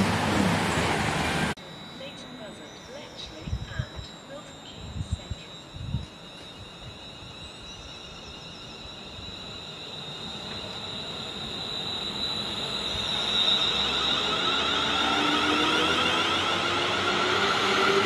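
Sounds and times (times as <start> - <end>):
wheels rumbling on rails: 0.0 - 1.6
electric train motor whine: 0.0 - 18.0.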